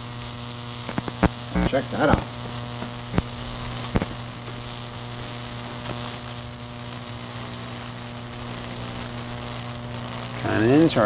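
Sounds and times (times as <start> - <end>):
electric arcs hissing: 0.0 - 11.0
sharp electric snap: 0.0 - 11.0
transformer humming: 0.7 - 11.0.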